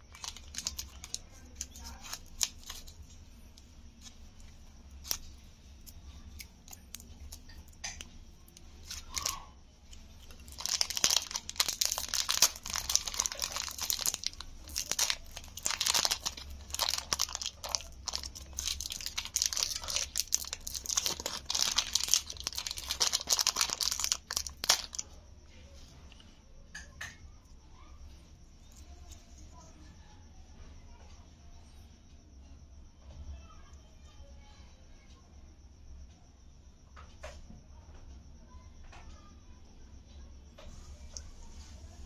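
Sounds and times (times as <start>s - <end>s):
cellophane wrapper crinkling: 0.0s - 3.2s, 4.0s - 25.1s.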